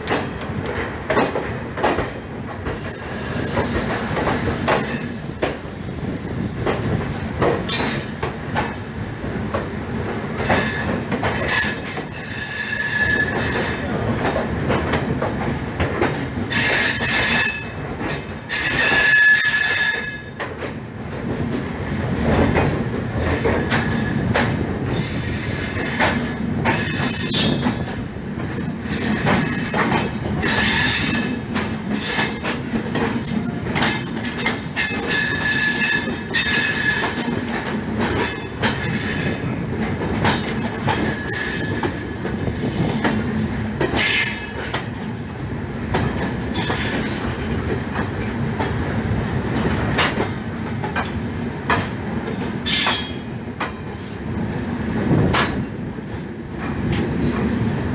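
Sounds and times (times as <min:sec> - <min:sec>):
clacks over rail joints: 0:00.0 - 0:57.9
train wheels rumbling on rails: 0:00.0 - 0:57.9
thin wheel squeal: 0:57.1 - 0:57.9.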